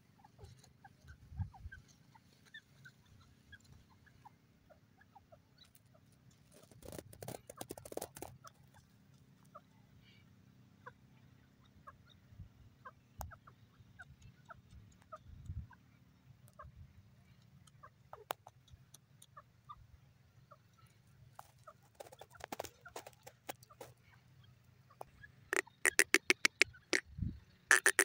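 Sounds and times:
birds clucking and chipping: 0.0 - 28.0
crackling rustle: 5.6 - 9.2, 21.3 - 24.2.

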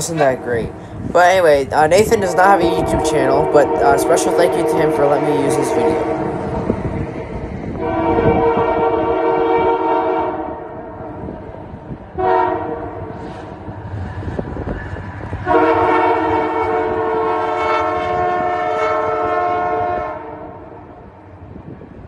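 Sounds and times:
passing train rumble: 0.0 - 22.0
locomotive air horn blasts: 2.7 - 6.7, 7.8 - 10.8, 12.2 - 13.0, 15.4 - 20.6.

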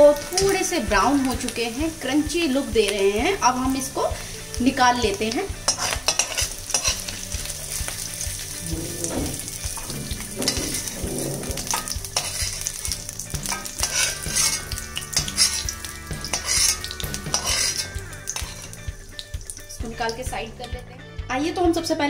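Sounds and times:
hot oil sizzling: 0.0 - 20.8
spoon scraping metal pan: 5.6 - 7.2, 8.6 - 18.9.

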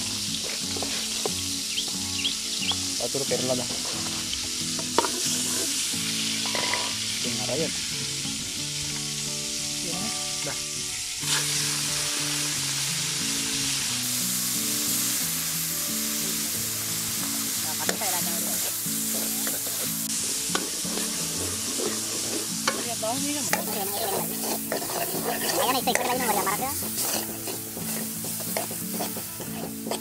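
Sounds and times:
squid sizzling in hot oil: 0.0 - 30.0
ladle tapping wok: 4.8 - 5.8, 6.4 - 7.0, 17.7 - 30.0.

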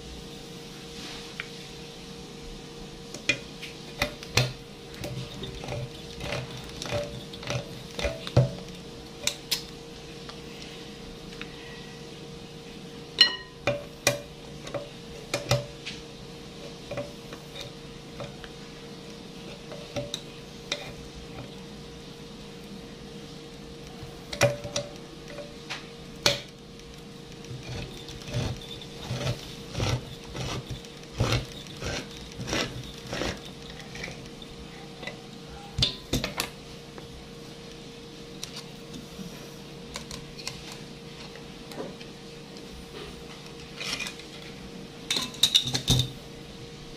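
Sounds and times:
faint steady hum: 0.0 - 46.9
can opener clicking and crunching: 4.0 - 9.7, 27.3 - 34.4.

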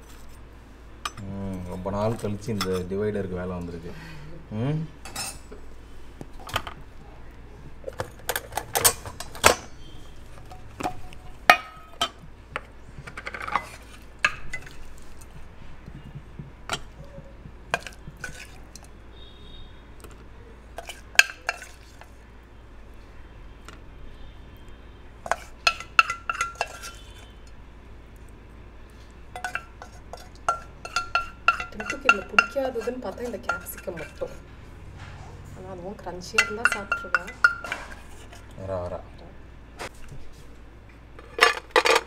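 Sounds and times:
kitchenware clinking on steel: 5.0 - 5.6, 7.8 - 12.2, 20.8 - 22.2, 25.2 - 27.6, 29.3 - 34.4, 36.0 - 38.6, 41.2 - 42.0.

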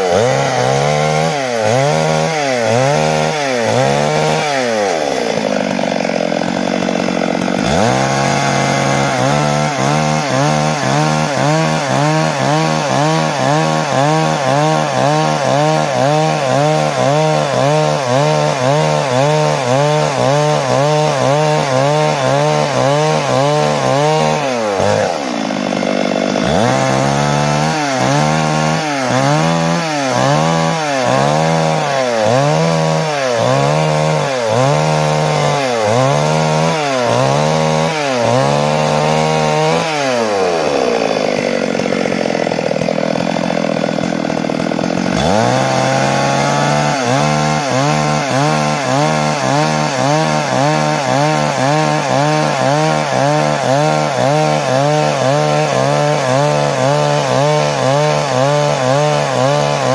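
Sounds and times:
chainsaw cutting log: 0.0 - 59.9.

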